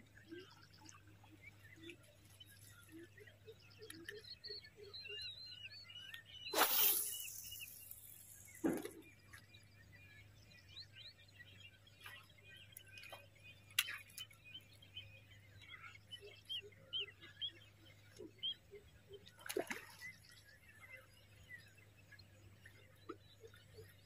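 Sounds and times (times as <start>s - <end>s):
small birds chirping: 0.1s - 24.0s
lure splashing into water: 6.5s - 9.1s, 19.4s - 20.1s.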